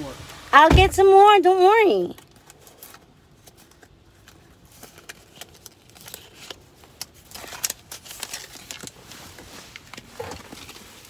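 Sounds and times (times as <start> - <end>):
paper money crinkling: 2.1 - 11.0.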